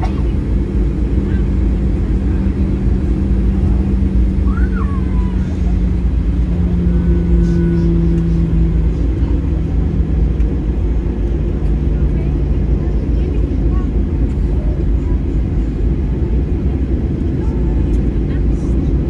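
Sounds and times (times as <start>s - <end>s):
aircraft engines low rumble: 0.0s - 19.0s
wheels rolling on taxiway: 0.0s - 19.0s.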